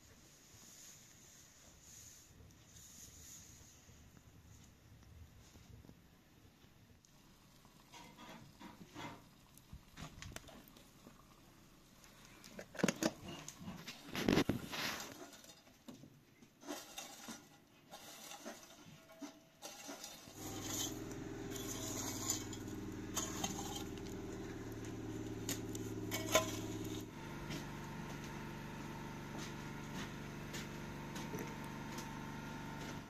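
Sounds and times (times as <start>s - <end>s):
embers poked and raked with rod: 12.6s - 27.6s
steady low hum: 20.4s - 33.0s.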